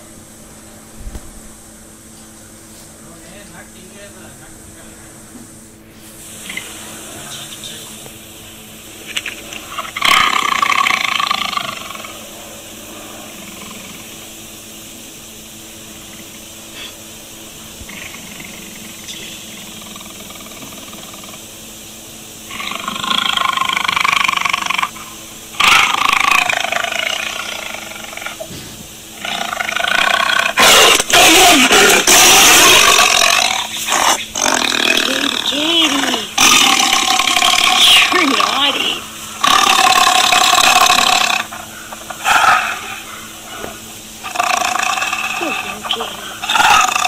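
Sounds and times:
tiger roaring: 9.0s - 14.4s, 22.5s - 47.0s.

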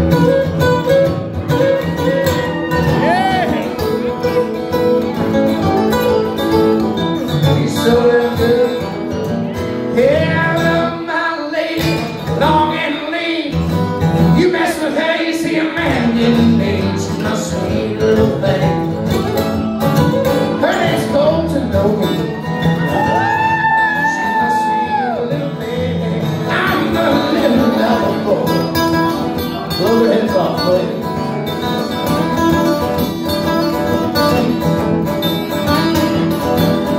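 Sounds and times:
acoustic guitars strumming: 0.0s - 36.9s
man singing: 2.0s - 4.1s, 7.2s - 19.6s, 20.4s - 31.3s.

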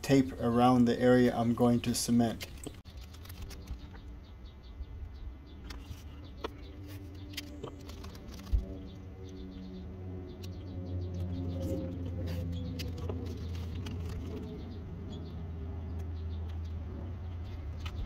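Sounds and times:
tape clicks and rustles: 2.3s - 4.1s, 5.6s - 9.4s, 10.4s - 14.8s.

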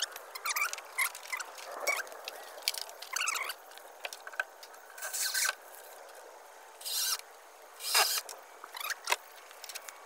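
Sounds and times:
scraping hiss: 4.9s - 7.2s
short squeaky chirps: 7.8s - 9.1s.

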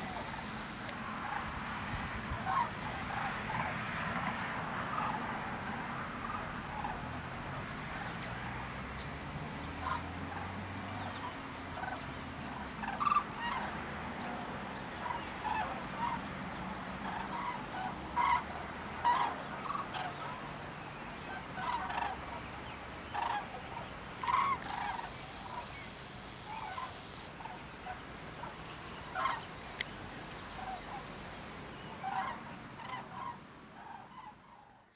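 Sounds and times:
cranes calling in flight: 23.1s - 25.7s, 26.4s - 27.6s.

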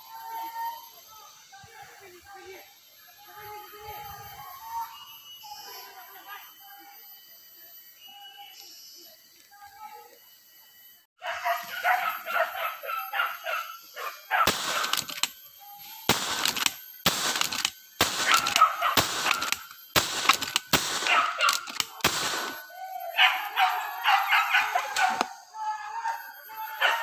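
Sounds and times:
dogs yelping and barking: 11.2s - 27.0s.

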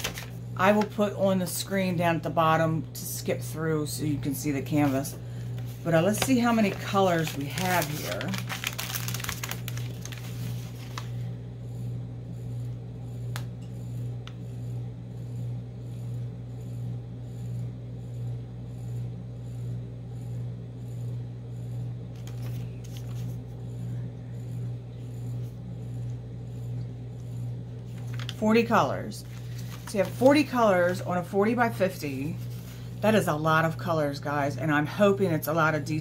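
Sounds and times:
paper rustle: 0.0s - 0.9s, 4.7s - 11.2s, 22.2s - 23.4s, 27.9s - 28.4s, 29.2s - 31.0s
low machine hum: 0.0s - 36.0s.

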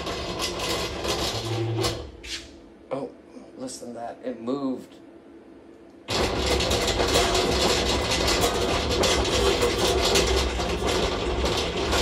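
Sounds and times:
tool changer carousel rattling: 6.1s - 12.0s.

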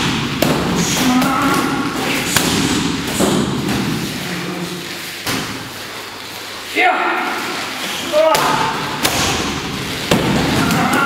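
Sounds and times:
strikes landing on pads: 8.3s - 11.0s.

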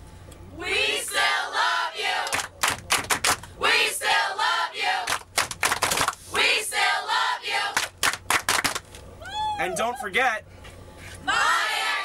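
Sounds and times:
crowd chanting in unison: 0.6s - 2.3s, 3.6s - 5.1s, 6.3s - 7.8s, 11.3s - 12.0s
hands clapping: 2.2s - 3.5s, 5.1s - 6.2s, 7.8s - 8.9s.

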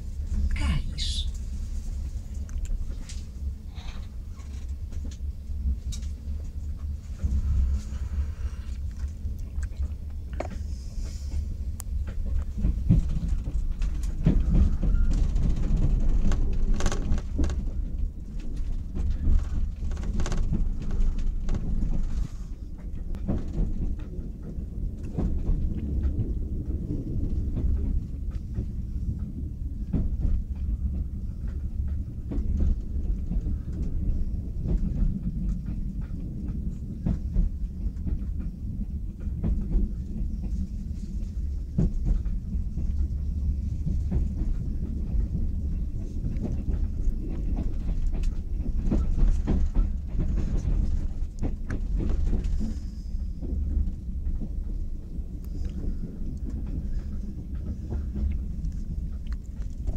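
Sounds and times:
train running gear rumble: 0.0s - 59.9s
wheels clicking over rail joints: 11.3s - 59.9s.

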